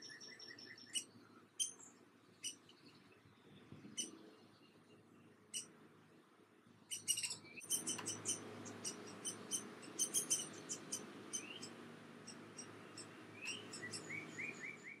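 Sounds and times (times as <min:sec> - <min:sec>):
woodpecker high chirps: 0:00.0 - 0:02.7, 0:06.9 - 0:15.0
lower bird calls: 0:00.0 - 0:04.8, 0:06.8 - 0:15.0.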